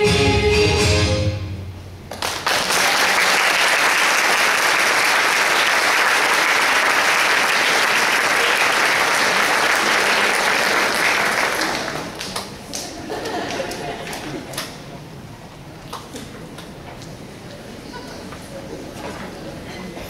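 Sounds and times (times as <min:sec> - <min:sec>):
audience applauding: 0:02.1 - 0:14.8.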